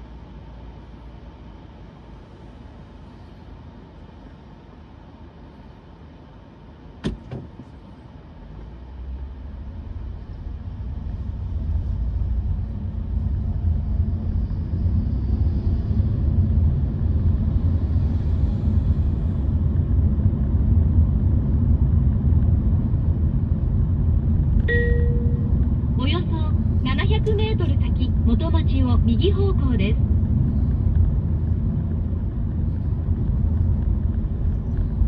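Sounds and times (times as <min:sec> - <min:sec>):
road and tyre rumble inside car: 0:00.0 - 0:35.0
brief beep: 0:24.7 - 0:25.6.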